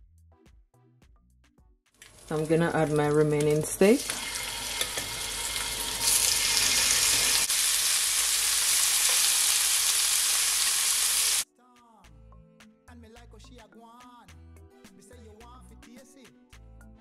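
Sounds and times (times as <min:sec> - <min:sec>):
faint background music: 0:02.1 - 0:04.1, 0:11.4 - 0:17.0
steak sizzling in a skillet: 0:04.0 - 0:11.4.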